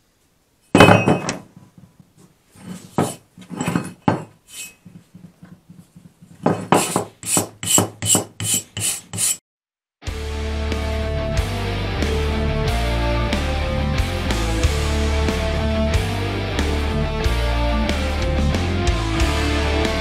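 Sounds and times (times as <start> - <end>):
axe scraping on wood: 0.8 - 9.4
wire brush scrubbing metal: 4.5 - 5.0, 6.8 - 9.4.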